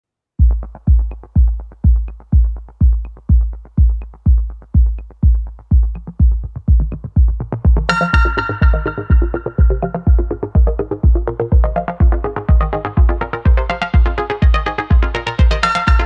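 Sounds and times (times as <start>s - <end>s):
kick drum beat: 0.4s - 16.0s
bright synth chord: 7.9s - 10.7s, 15.6s - 16.0s.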